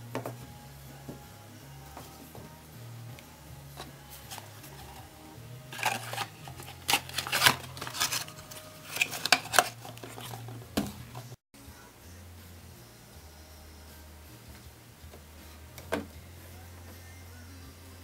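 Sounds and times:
quiet background music: 0.0 - 18.0.

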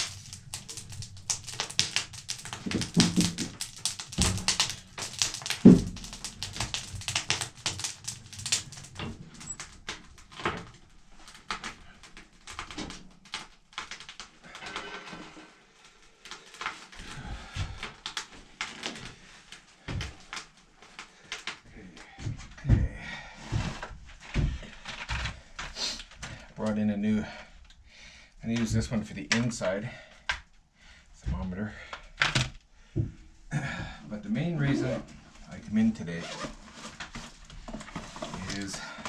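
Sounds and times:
firewood knocking: 0.0 - 10.8
wood fire crackling and popping: 0.0 - 39.0.

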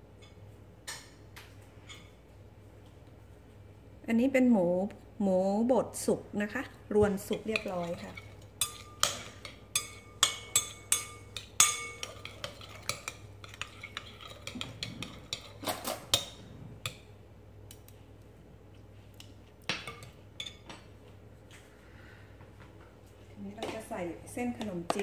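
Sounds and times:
metal spoon clinking on glass bowl: 7.3 - 16.4.

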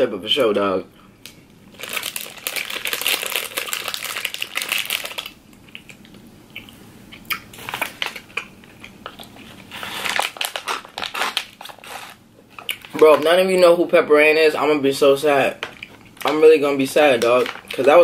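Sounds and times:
plastic wrapper crinkling: 1.2 - 6.1, 7.6 - 13.4, 15.6 - 18.0.

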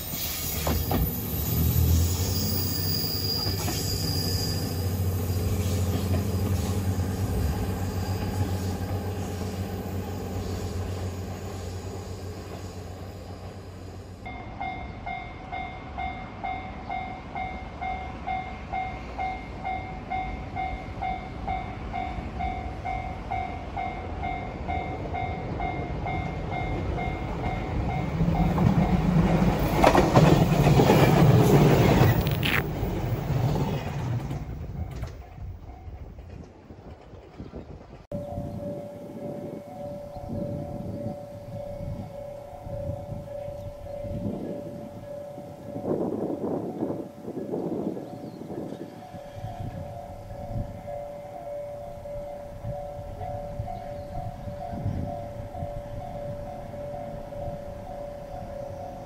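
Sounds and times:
train wheels rumbling and clattering: 0.0 - 13.9, 17.8 - 51.5
railcar engine drone: 0.0 - 59.0
level crossing bell ringing: 38.1 - 46.8.

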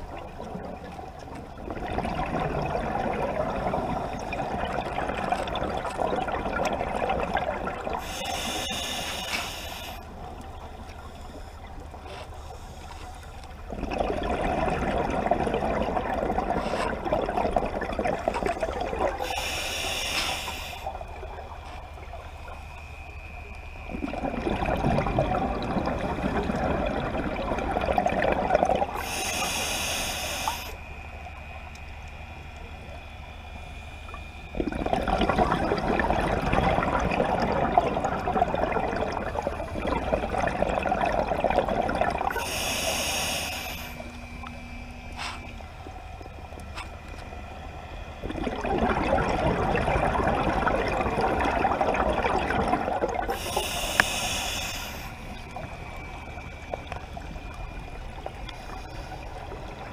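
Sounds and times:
exhaled bubbles rushing: 0.0 - 8.4, 13.7 - 19.3, 23.8 - 29.2, 34.5 - 42.8, 48.2 - 53.8
regulator hiss on inhalation: 8.0 - 10.1, 19.2 - 21.0, 28.9 - 30.8, 42.3 - 45.6, 53.3 - 55.4.

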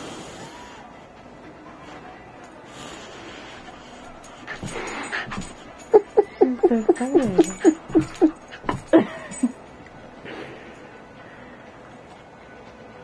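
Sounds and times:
dog whining and yipping: 4.5 - 9.5.

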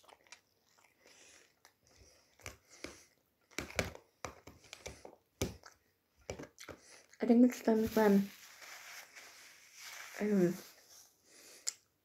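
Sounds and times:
mouth chewing food: 0.0 - 3.6, 4.3 - 7.4.

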